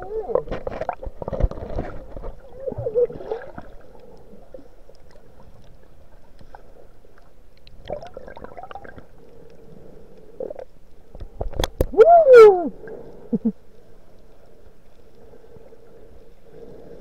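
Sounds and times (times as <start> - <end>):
muffled gurgles: 0.0 - 4.8
muffled underwater wash: 0.0 - 17.0
faint hum: 2.4 - 17.0
faint clicks: 3.8 - 7.9, 8.9 - 12.0.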